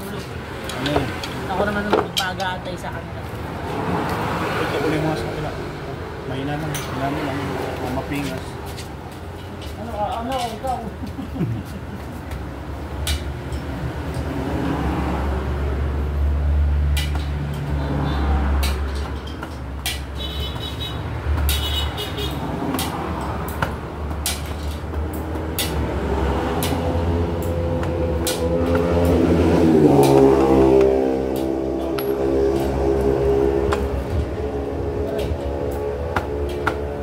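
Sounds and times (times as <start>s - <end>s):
road traffic drone: 0.0s - 37.0s
vehicle passing by: 2.6s - 9.9s, 13.4s - 19.9s, 22.2s - 37.0s.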